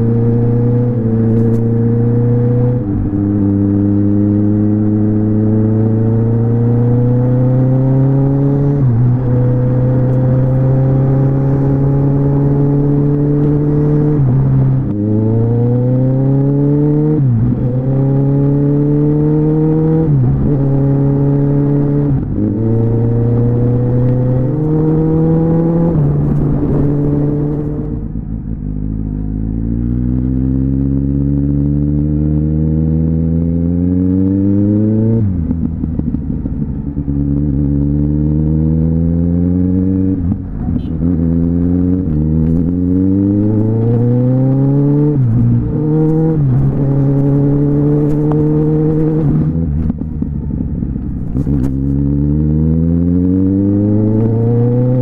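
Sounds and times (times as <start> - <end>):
motorcycle engine accelerating: 0.0 - 55.0.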